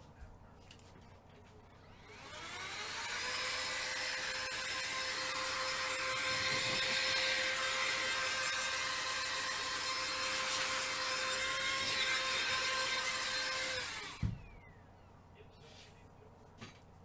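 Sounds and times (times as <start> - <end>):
electric motor whining: 1.7 - 14.8.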